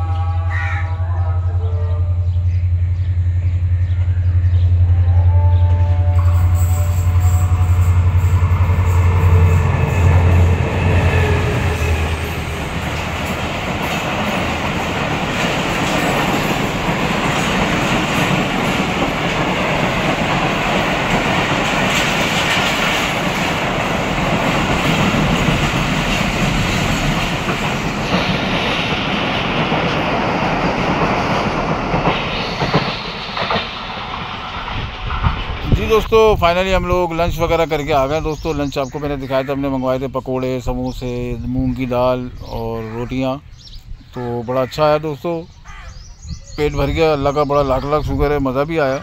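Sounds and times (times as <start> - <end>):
diesel locomotive engine hum: 0.0 - 44.6
train wheels rattling over rails: 6.4 - 38.3.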